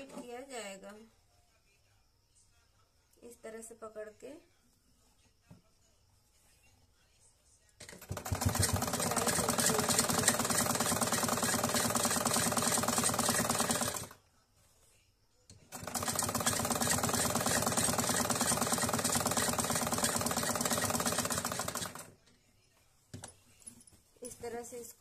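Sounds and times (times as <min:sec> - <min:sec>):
sewing machine stitching: 0:07.8 - 0:14.2, 0:15.6 - 0:22.1.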